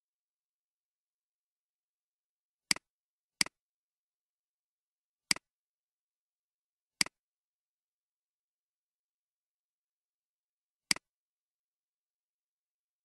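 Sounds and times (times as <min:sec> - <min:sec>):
computer mouse clicks: 0:05.3 - 0:05.5, 0:10.9 - 0:11.1.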